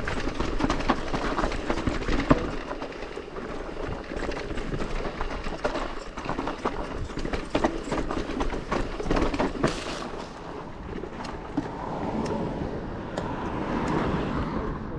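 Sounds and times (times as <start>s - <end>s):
bike frame rattling: 0.0s - 11.8s
bike tyres crunching over dirt: 0.0s - 12.2s.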